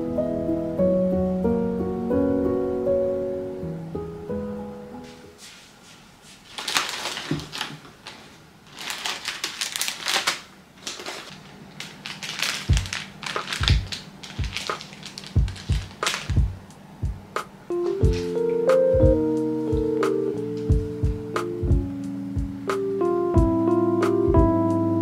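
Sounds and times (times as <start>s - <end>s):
plastic packaging rustling: 5.4s - 16.6s.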